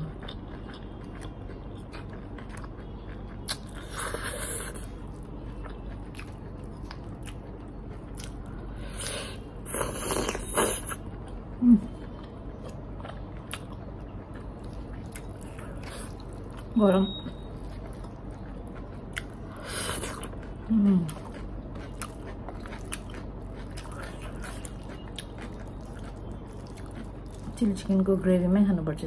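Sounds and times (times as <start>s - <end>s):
chewing with wet mouth clicks: 0.0s - 27.7s.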